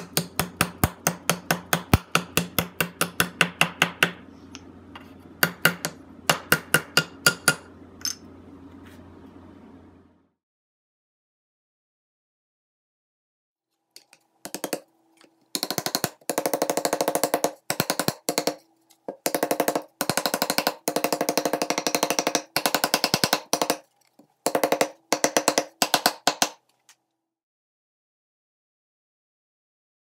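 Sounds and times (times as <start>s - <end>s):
faint steady hum: 0.0s - 10.4s.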